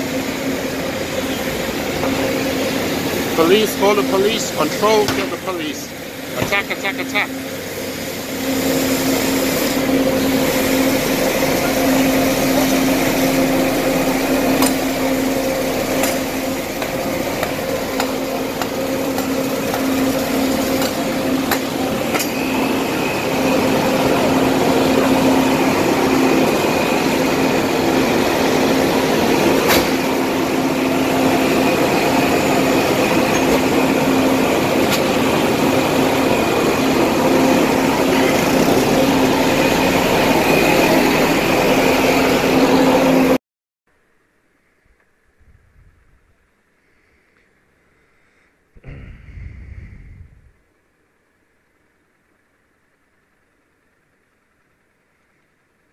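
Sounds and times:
scooter engines running: 0:00.0 - 0:43.4.

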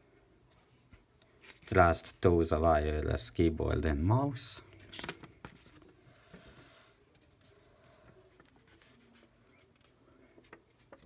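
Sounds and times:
paper leaflet rustling: 0:01.4 - 0:02.2, 0:04.7 - 0:06.0, 0:07.1 - 0:11.0
soft paper ticks: 0:07.1 - 0:11.0.

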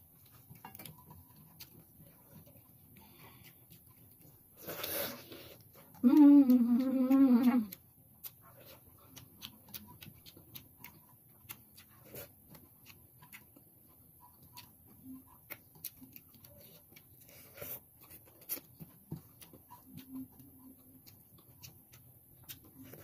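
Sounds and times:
chewing and lip smacks: 0:00.2 - 0:23.0
closed-mouth hum: 0:04.6 - 0:07.8.

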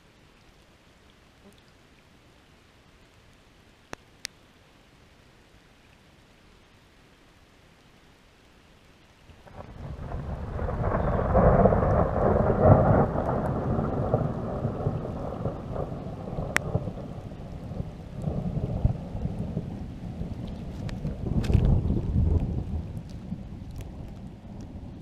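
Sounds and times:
rain falling on a lake: 0:00.0 - 0:25.0
rolling thunder: 0:09.4 - 0:25.0.

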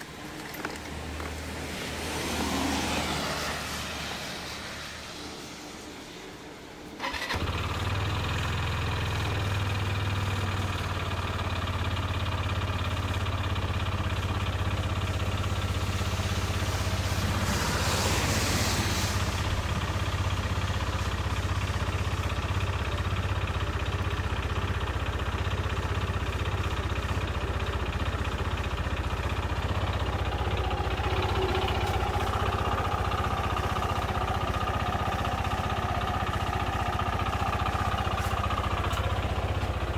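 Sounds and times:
scooter engine idling: 0:06.8 - 0:39.9
brief rush of hiss: 0:16.9 - 0:19.5.

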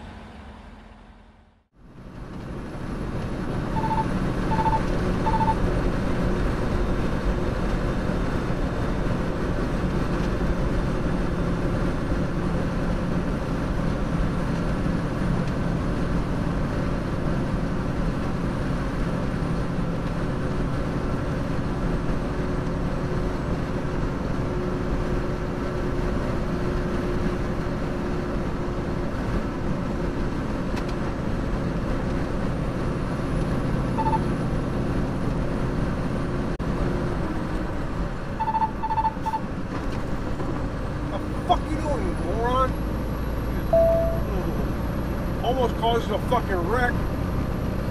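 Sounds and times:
truck engine and tyre drone: 0:00.0 - 0:47.9
short electronic beep: 0:03.7 - 0:05.6, 0:34.0 - 0:34.3, 0:38.4 - 0:39.4, 0:43.7 - 0:44.4.

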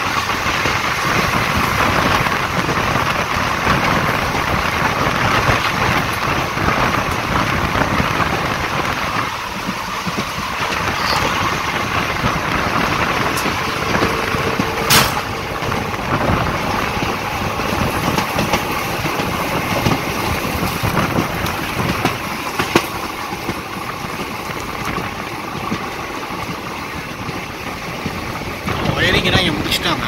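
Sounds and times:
train wheel and rail noise: 0:00.0 - 0:30.0
wind rushing: 0:00.8 - 0:22.6.

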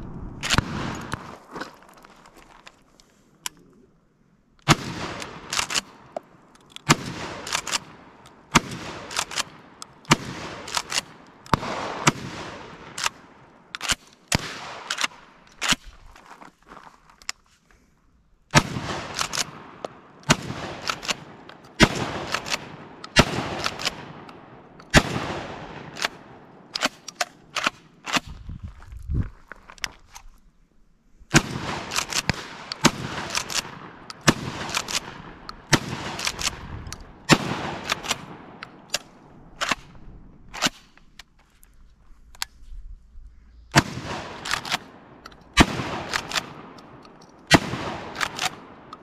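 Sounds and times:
shotgun blasts with echo: 0:06.9 - 0:15.3, 0:18.5 - 0:28.3, 0:31.3 - 0:40.9, 0:43.7 - 0:48.9.

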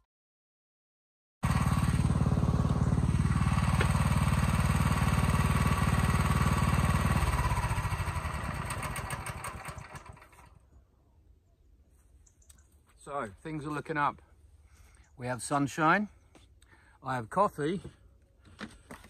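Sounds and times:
small petrol engine running: 0:01.4 - 0:10.6.

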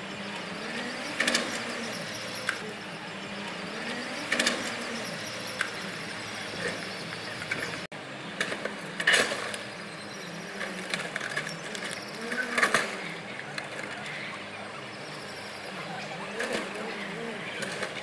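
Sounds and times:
forklift engine running: 0:00.0 - 0:18.0.

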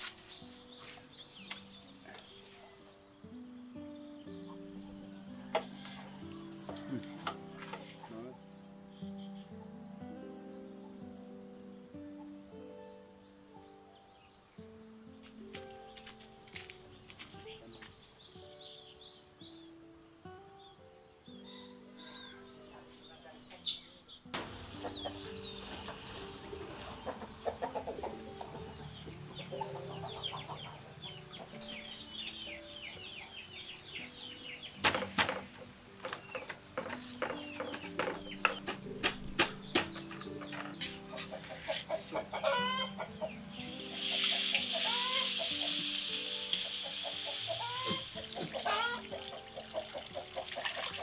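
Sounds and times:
chickens clucking: 0:24.4 - 0:51.0
spice paste frying in wok: 0:44.0 - 0:47.6.

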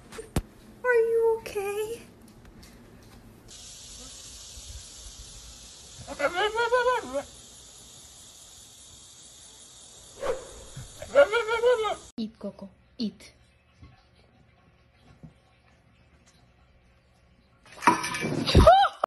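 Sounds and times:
steady high hiss: 0:03.5 - 0:12.1.

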